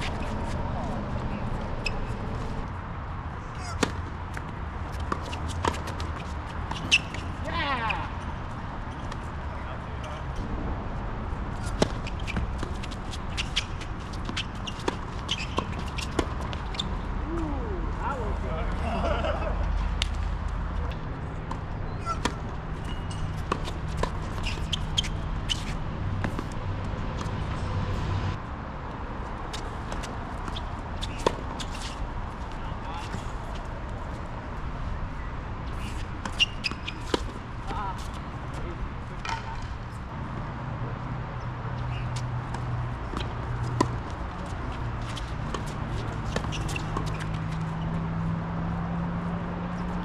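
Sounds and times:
tennis balls struck and bouncing: 3.6s - 7.9s, 11.5s - 17.0s, 20.0s - 26.6s, 39.2s - 39.8s, 41.9s - 48.3s
tennis ball struck and bouncing: 5.0s - 6.1s, 39.2s - 39.8s.

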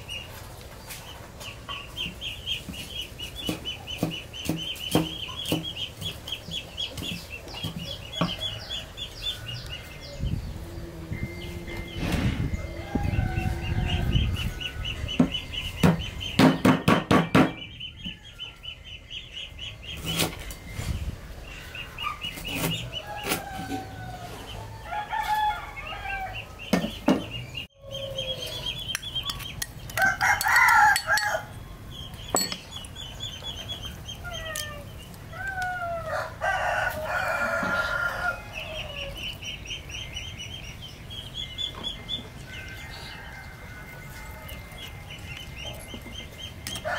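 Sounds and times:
rooster crowing: 10.8s - 15.0s, 23.0s - 26.5s, 30.0s - 31.5s, 35.8s - 39.2s, 42.5s - 45.1s.

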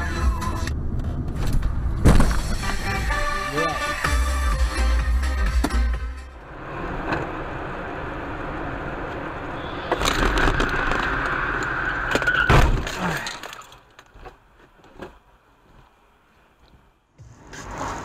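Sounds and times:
faint road noise: 0.0s - 18.0s
car crash: 1.3s - 2.8s, 9.6s - 13.9s
tyres screeching: 9.4s - 13.8s.

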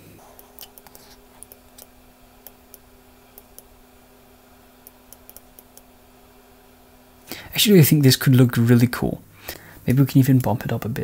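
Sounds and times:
low steady hum: 0.0s - 11.0s
computer mouse clicks: 0.3s - 3.7s, 4.8s - 5.9s.

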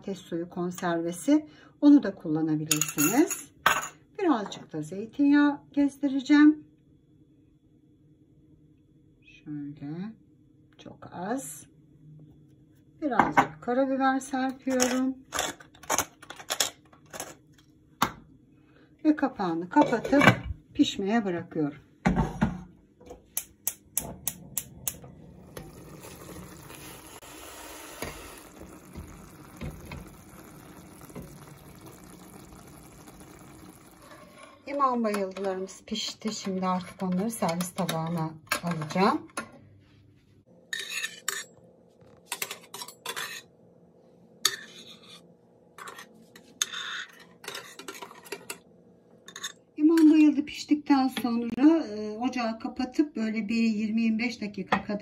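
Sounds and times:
gas hob igniter clicking: 23.3s - 25.6s
sauce simmering in a pan: 25.4s - 34.6s
metal utensils scraping ceramic plate: 40.7s - 41.5s, 42.3s - 43.5s, 44.4s - 48.6s, 49.3s - 50.2s.

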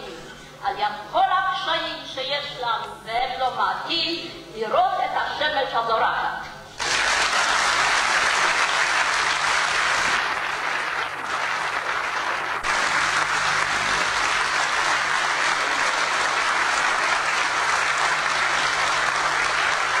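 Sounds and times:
audience applause: 6.8s - 20.0s.

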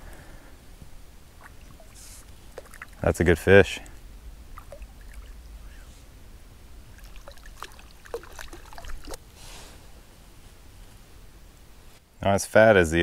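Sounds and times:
fish splashing in water: 1.4s - 3.0s, 4.5s - 5.4s, 6.9s - 9.2s.

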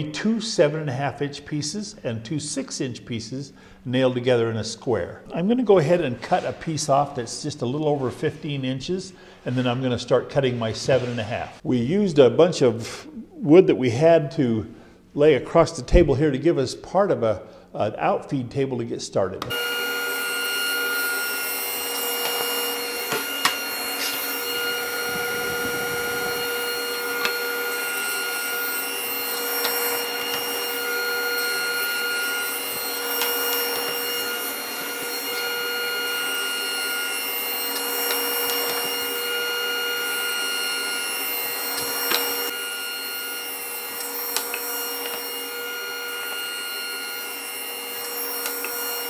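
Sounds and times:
table saw whining: 5.3s - 11.6s, 19.4s - 49.0s
saw cutting board: 5.9s - 7.2s, 9.5s - 11.6s, 19.4s - 49.0s
dust collector running: 19.5s - 49.0s.

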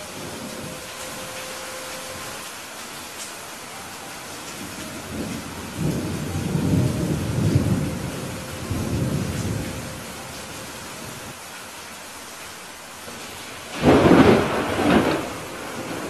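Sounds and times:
rain hissing: 0.0s - 16.0s
thunder rolling: 4.6s - 10.3s, 13.7s - 16.0s.

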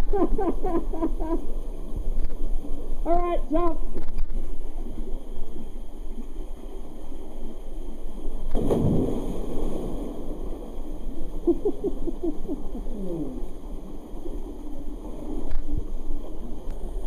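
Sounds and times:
water churning and sloshing: 0.0s - 17.0s
deep splash into water: 8.5s - 10.8s.

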